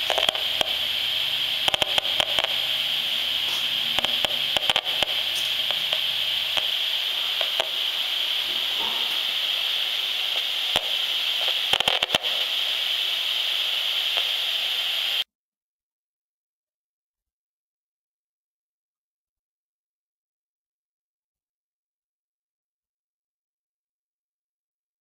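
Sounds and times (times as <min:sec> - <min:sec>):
crackling clicks: 0:00.0 - 0:15.2
radio static hiss: 0:00.0 - 0:15.2.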